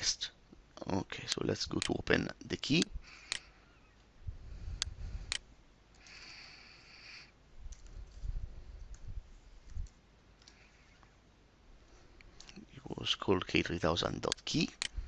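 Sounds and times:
computer mouse clicks: 4.8 - 6.2, 7.7 - 8.2, 8.8 - 11.1
keyboard typing: 7.7 - 8.2.

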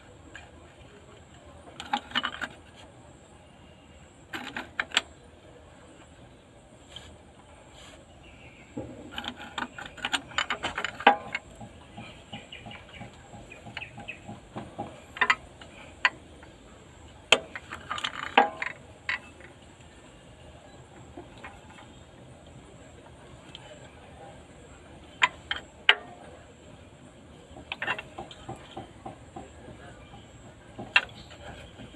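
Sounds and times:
metal clicks and knocks of wrench: 13.0 - 16.2.

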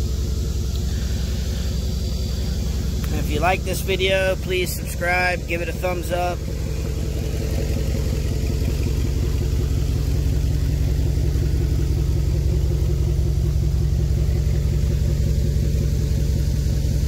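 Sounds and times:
truck engine drone from cab: 0.0 - 17.0.

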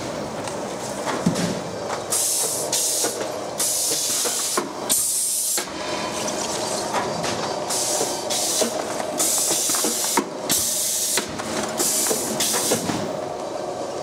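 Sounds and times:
machine hiss: 2.1 - 6.2, 7.6 - 13.1.

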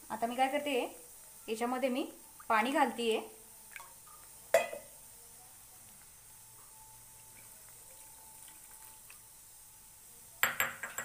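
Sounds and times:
water pouring: 7.2 - 9.2.

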